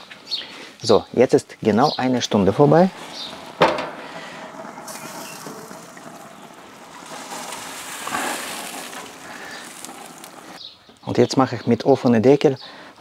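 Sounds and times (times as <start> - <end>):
gas grill hissing: 2.6 - 10.6.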